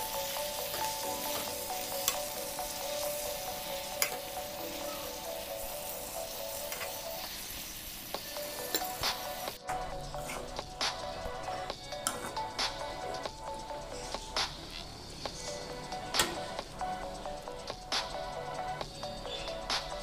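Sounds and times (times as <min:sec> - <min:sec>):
leaves sizzling in a hot pan: 0:00.0 - 0:20.0
spoon stirring in pan: 0:00.2 - 0:12.6.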